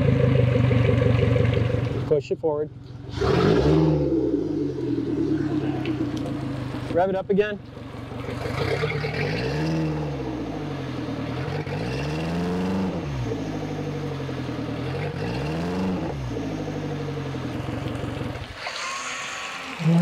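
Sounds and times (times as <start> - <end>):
outboard engine revving: 0.0 - 2.2, 3.0 - 20.0.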